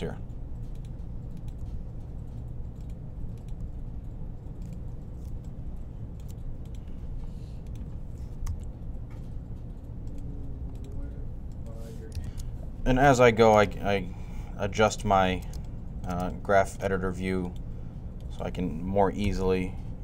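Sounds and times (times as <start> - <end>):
steady low hum: 0.0 - 20.0
keyboard and mouse clicks: 0.6 - 7.0, 7.6 - 8.8.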